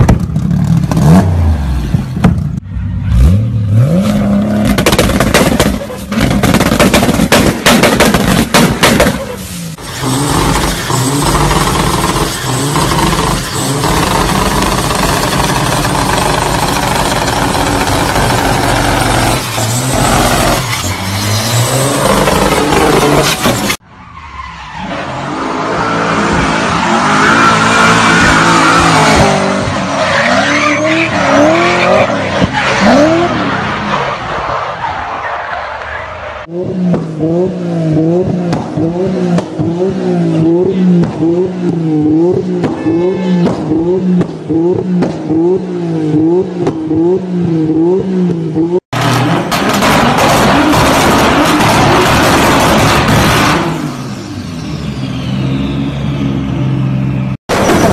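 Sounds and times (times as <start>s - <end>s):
car engine at high revs: 3.2s - 23.8s, 36.4s - 57.9s.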